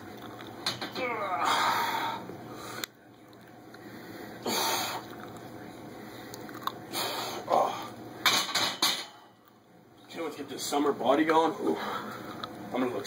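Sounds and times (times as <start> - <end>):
man grunting: 1.0 - 2.0
man breathing heavily: 1.2 - 2.9, 3.8 - 5.1.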